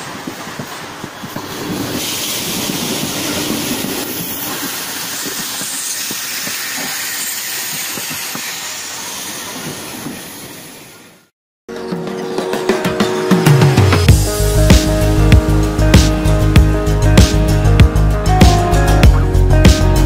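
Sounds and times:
wheels clacking over rail joints: 0.0s - 11.0s
electric train wheels on rails: 0.0s - 16.2s.

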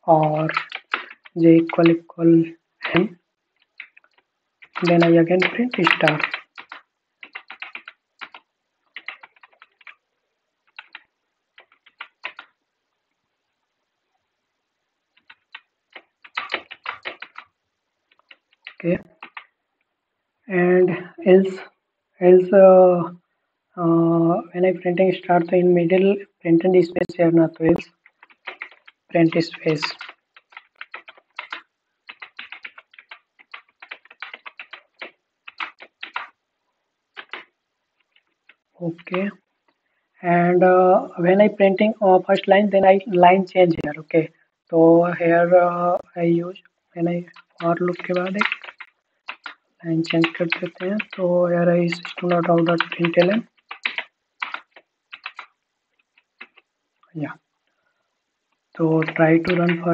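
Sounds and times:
typing on computer keyboard: 0.0s - 2.0s, 2.8s - 10.0s, 10.6s - 12.6s, 15.1s - 19.5s, 26.8s - 36.4s, 37.1s - 39.4s, 47.2s - 56.7s, 59.0s - 59.9s.

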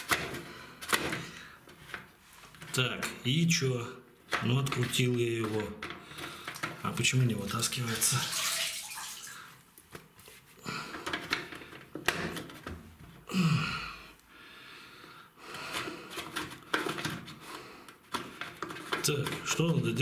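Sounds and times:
water trickling and splashing: 7.8s - 9.5s.

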